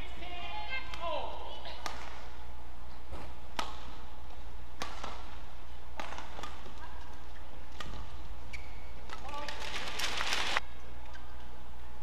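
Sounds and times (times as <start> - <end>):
rackets hitting shuttlecock: 1.7 - 2.4, 3.1 - 4.0, 4.7 - 10.0.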